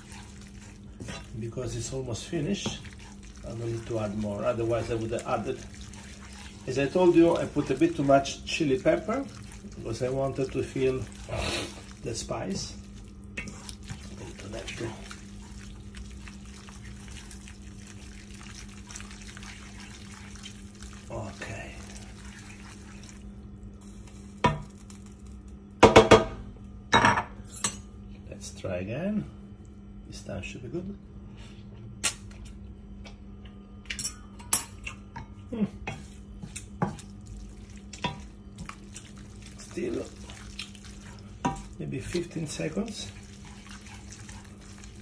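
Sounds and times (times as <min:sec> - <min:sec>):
wooden spatula stirring: 0:00.0 - 0:23.3, 0:35.9 - 0:45.0
steady low hum: 0:00.0 - 0:45.0
food sizzling in frying pan: 0:02.4 - 0:25.4.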